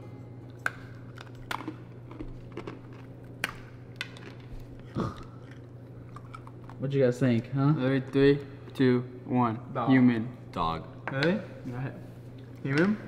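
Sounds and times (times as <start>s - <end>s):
steady low hum: 0.0s - 13.0s
crunching dog treat: 1.1s - 3.1s
quiet chewing: 4.1s - 6.8s.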